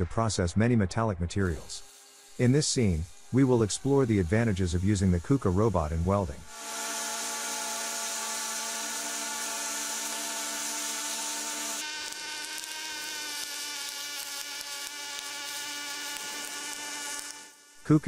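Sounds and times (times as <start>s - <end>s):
welding arc buzzing and hissing: 1.5s - 18.0s.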